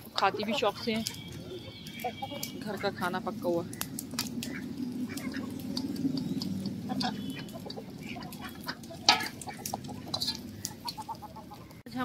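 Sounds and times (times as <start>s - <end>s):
beaks pecking metal bowl: 0.0s - 11.8s
hens clucking: 0.0s - 11.8s.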